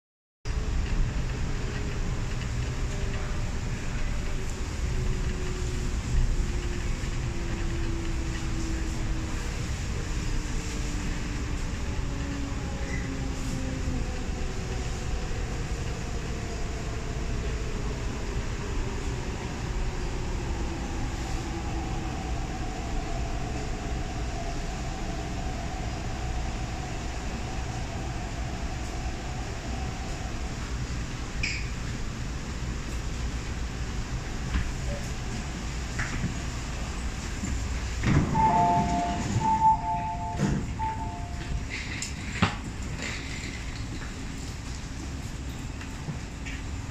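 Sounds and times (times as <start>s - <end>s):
train running gear rumble: 0.5s - 46.9s
faint falling whine: 38.3s - 41.6s.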